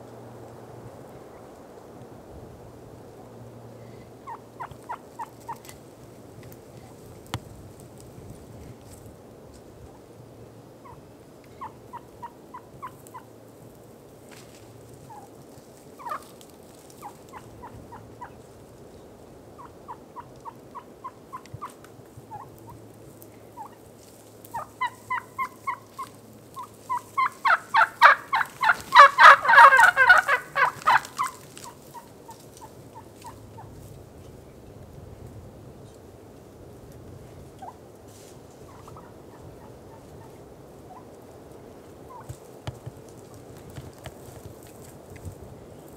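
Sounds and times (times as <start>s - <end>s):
turkey yelping: 4.2s - 5.6s, 11.6s - 13.3s, 16.0s - 16.3s, 17.0s - 18.4s, 19.6s - 22.8s, 23.6s - 23.8s, 24.5s - 33.7s, 38.7s - 41.1s, 42.1s - 42.4s
turkey gobbling: 4.2s - 5.7s, 10.8s - 13.3s, 15.0s - 15.4s, 16.0s - 18.4s, 19.6s - 22.8s, 23.5s - 33.7s, 37.6s - 37.8s, 38.6s - 41.2s, 42.1s - 42.4s.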